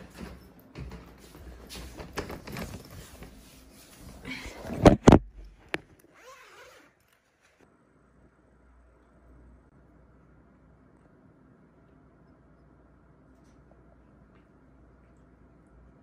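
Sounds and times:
zip pulls: 0:06.0 - 0:07.6.

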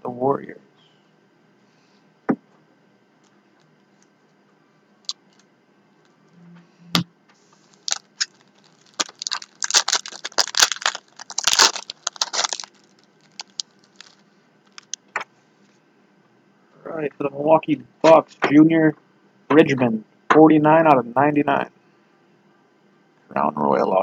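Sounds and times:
card wrappers crinkling: 0:07.6 - 0:15.0.

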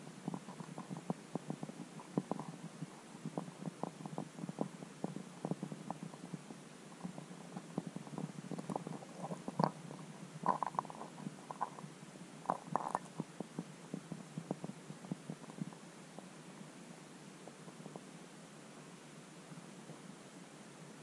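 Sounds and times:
low steady hum: 0:00.0 - 0:21.0
underwater clicks and knocks: 0:07.1 - 0:11.8, 0:12.5 - 0:13.7.

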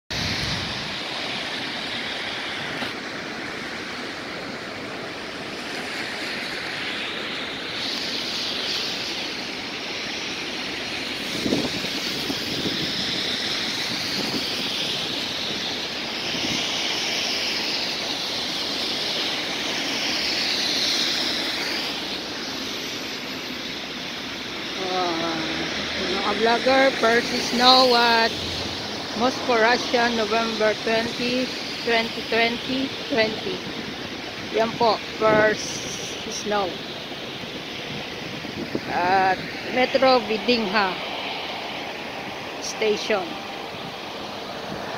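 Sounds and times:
road traffic rushing: 0:00.1 - 0:44.9.

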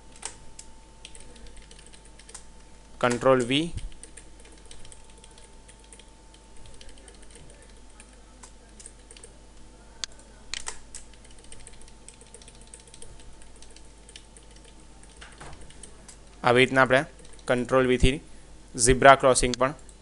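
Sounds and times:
faint electrical hum: 0:00.0 - 0:20.0
computer keyboard keys tapping: 0:00.1 - 0:09.4, 0:10.0 - 0:16.2, 0:17.2 - 0:17.5.

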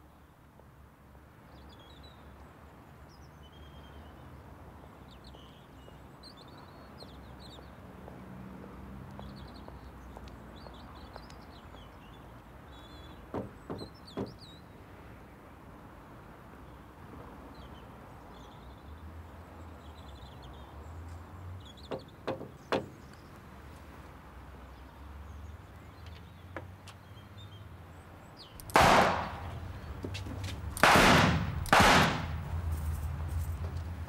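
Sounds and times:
faint birdsong: 0:01.4 - 0:07.9, 0:09.0 - 0:15.4, 0:16.5 - 0:30.8
revolver shots: 0:28.6 - 0:29.6, 0:30.7 - 0:32.4.

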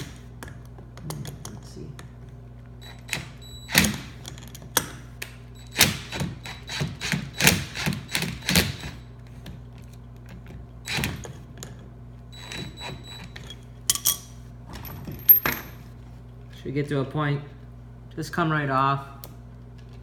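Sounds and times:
metal tools clicking and rattling: 0:13.9 - 0:15.7.

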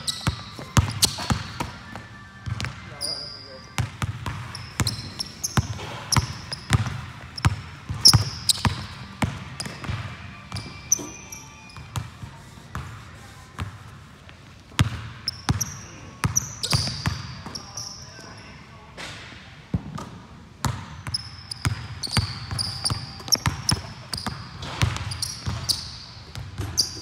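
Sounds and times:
sneaker squeaks on hardwood: 0:00.0 - 0:12.9, 0:15.3 - 0:18.1, 0:21.0 - 0:27.0
basketball bouncing on hardwood floor: 0:03.8 - 0:10.6.

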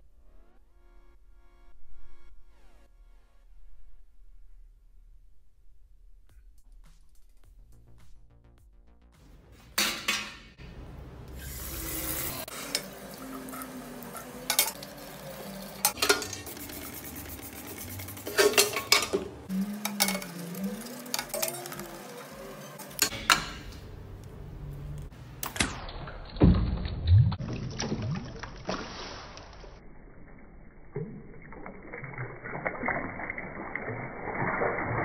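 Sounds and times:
brush scrubbing metal: 0:11.7 - 0:19.1
metal clanking on basin: 0:14.2 - 0:16.7, 0:18.2 - 0:21.9
water sloshing in bucket: 0:26.6 - 0:29.7.

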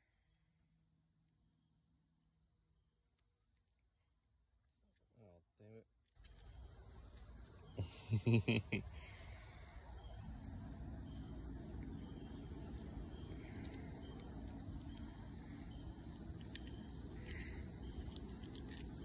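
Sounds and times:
insects chirping: 0:05.9 - 0:19.0
low background rumble: 0:06.3 - 0:19.0.

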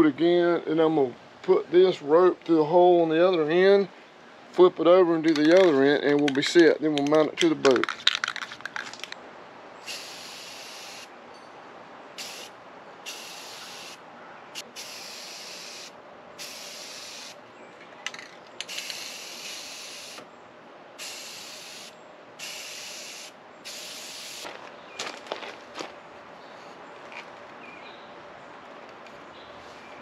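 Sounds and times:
spray paint can hissing: 0:09.8 - 0:11.1, 0:12.2 - 0:12.5, 0:13.1 - 0:14.0, 0:14.6 - 0:17.4, 0:18.6 - 0:20.2, 0:21.0 - 0:24.5.

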